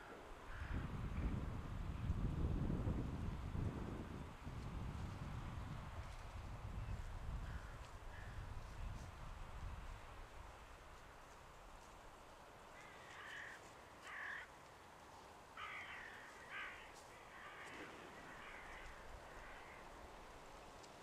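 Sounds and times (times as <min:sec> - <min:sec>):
crow cawing: 0:00.5 - 0:00.8, 0:12.8 - 0:14.5, 0:15.6 - 0:20.0.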